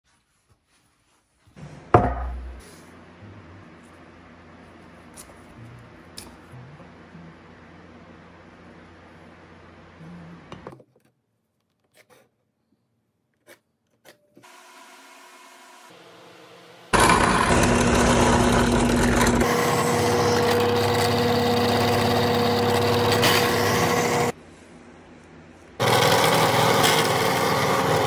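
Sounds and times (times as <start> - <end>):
drill press motor hum: 14.4 - 24.4, 25.8 - 28.0.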